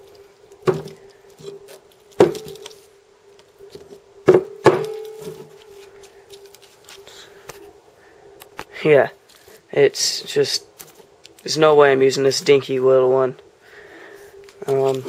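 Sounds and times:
faint hum: 0.0s - 15.0s.

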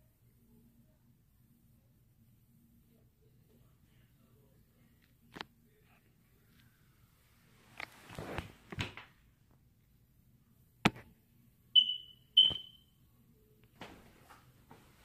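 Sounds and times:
bedding rustling: 7.5s - 9.1s
body sliding onto wooden floor: 7.8s - 9.0s
short high chirps: 11.8s - 12.9s.

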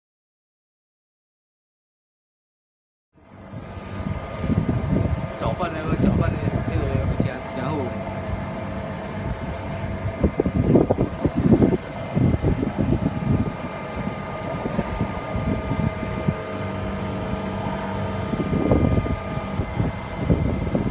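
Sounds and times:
steady mechanical hum: 3.2s - 20.9s
water churning and bubbling: 3.2s - 20.9s.

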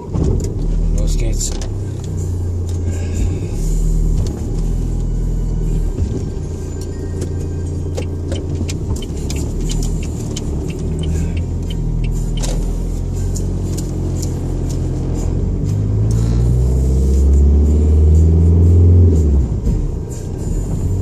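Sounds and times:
engine and road rumble: 0.0s - 21.0s
sharp ticks: 8.0s - 12.7s.

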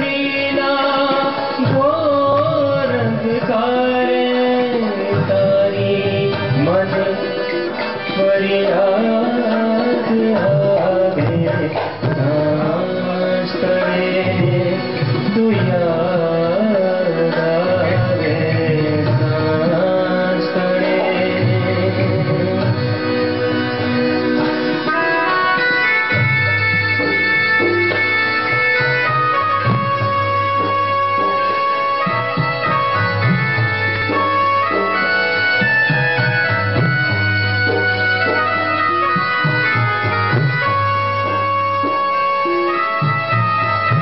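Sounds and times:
man singing: 0.0s - 24.2s
harmonium: 0.0s - 44.0s
percussion beat: 0.0s - 44.0s.

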